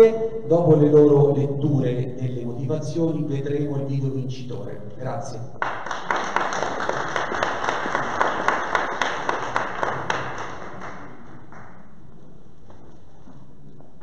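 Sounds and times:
audience applauding: 5.6 - 11.8.

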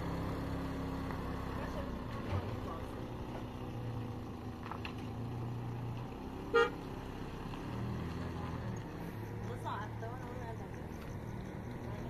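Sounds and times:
vehicle engine running: 0.0 - 12.0
short horn toot: 6.5 - 6.8.

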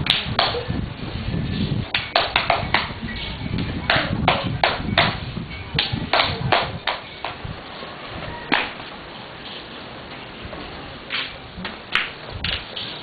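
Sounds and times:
hands clapping: 11.9 - 12.6.

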